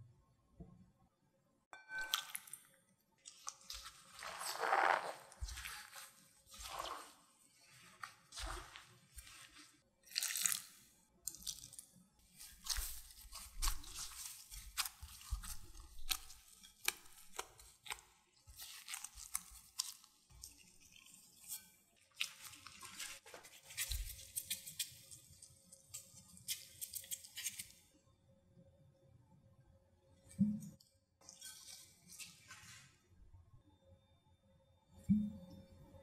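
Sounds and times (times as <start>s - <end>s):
rustling squishing strokes: 3.2s - 10.8s, 12.3s - 27.7s
hands kneading potato dough: 3.2s - 27.9s.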